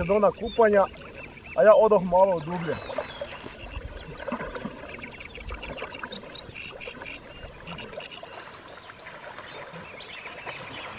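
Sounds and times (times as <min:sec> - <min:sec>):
birds chirping: 0:00.0 - 0:10.9
water splashing from swimmer: 0:02.4 - 0:10.9.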